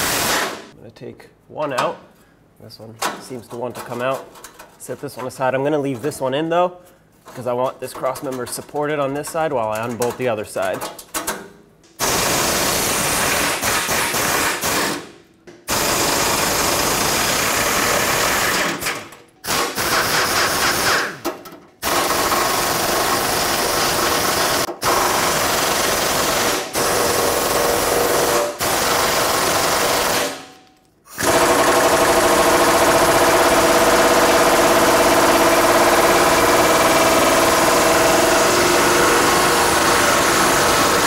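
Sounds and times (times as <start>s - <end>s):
impact wrench hammering: 31.2s - 41.0s.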